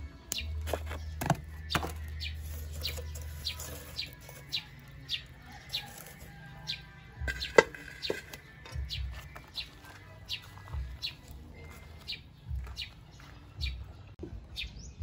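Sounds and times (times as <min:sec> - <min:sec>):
bird chirping: 0:00.3 - 0:15.0
charcoal knocking into metal stove: 0:07.2 - 0:08.9.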